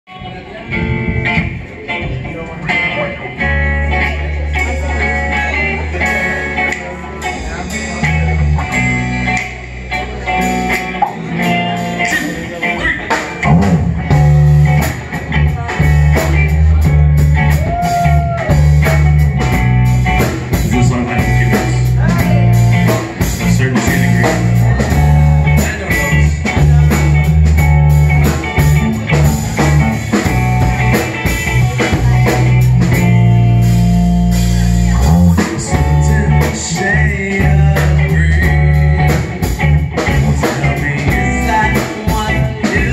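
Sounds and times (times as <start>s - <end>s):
electric bass: 0.0s - 42.9s
drum kit: 0.1s - 42.9s
electric guitar: 0.1s - 42.9s
man singing into a microphone: 20.5s - 27.3s, 34.9s - 39.4s, 40.0s - 42.9s.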